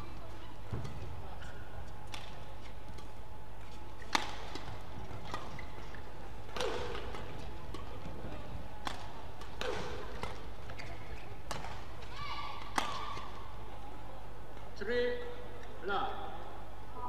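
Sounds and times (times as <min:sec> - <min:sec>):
low hum of hall: 0:00.0 - 0:17.0
rackets striking shuttlecock: 0:00.7 - 0:13.4.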